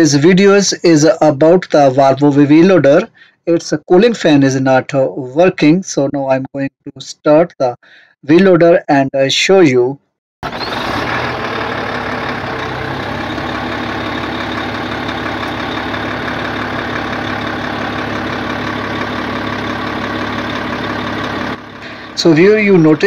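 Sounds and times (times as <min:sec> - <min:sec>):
diesel engine idling: 0:10.4 - 0:23.0.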